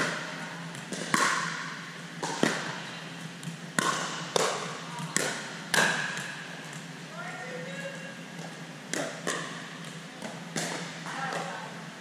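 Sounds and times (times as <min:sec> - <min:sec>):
paddles hitting plastic ball: 0:00.0 - 0:06.9, 0:08.4 - 0:11.6
ball bouncing on court: 0:00.0 - 0:07.0, 0:07.7 - 0:11.6.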